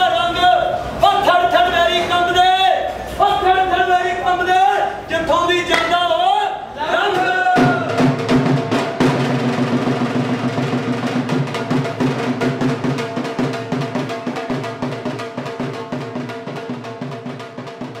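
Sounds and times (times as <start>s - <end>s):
fast dense drumming: 7.5s - 18.0s.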